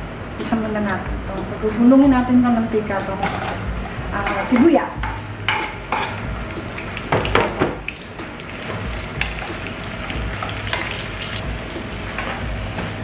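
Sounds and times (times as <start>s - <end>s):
onions sizzling in frying pan: 7.8s - 13.0s.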